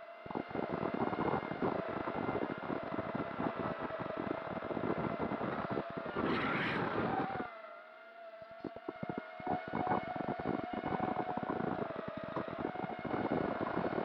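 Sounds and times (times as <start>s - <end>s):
wind buffeting microphone: 0.2s - 7.6s, 8.5s - 14.0s
quadcopter motors whining: 3.8s - 14.0s.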